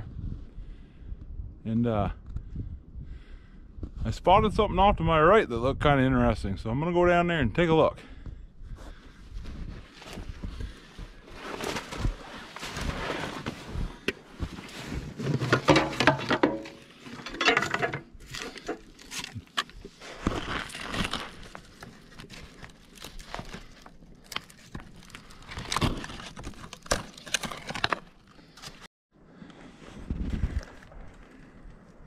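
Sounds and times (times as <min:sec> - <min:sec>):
footsteps crunching through woods: 0:18.8 - 0:25.5.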